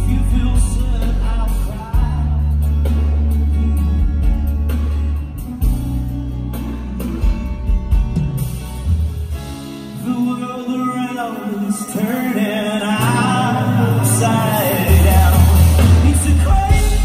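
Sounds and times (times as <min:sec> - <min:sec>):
man singing: 0:00.0 - 0:03.0, 0:09.9 - 0:17.0
deep bass line: 0:00.0 - 0:09.4, 0:13.6 - 0:17.0.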